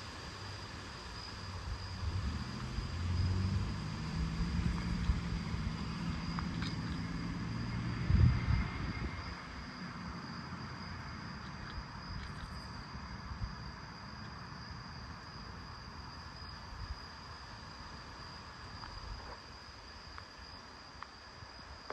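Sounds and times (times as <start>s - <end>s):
night insects trilling: 0.0s - 21.9s
low rumble: 1.8s - 12.7s.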